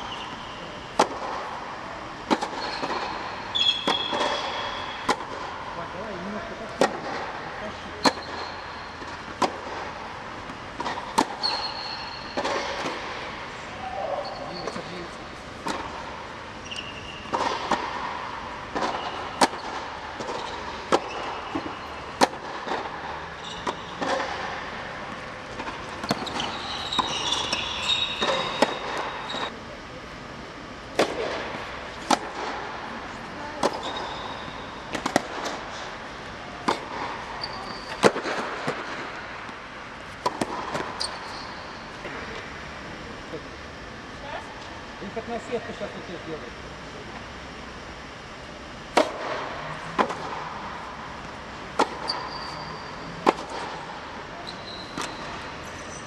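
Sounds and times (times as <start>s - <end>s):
shoes squeaking on court: 0.0s - 1.0s, 2.2s - 5.1s, 7.9s - 9.6s, 10.5s - 13.1s, 13.7s - 17.6s, 18.7s - 29.5s, 33.6s - 35.9s, 36.6s - 38.9s, 40.1s - 42.3s, 51.2s - 56.0s.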